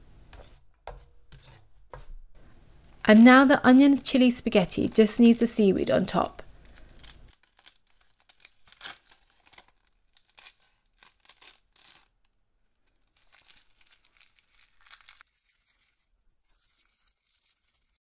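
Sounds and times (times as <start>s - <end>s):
dry seaweed sheet tearing: 6.5s - 18.0s.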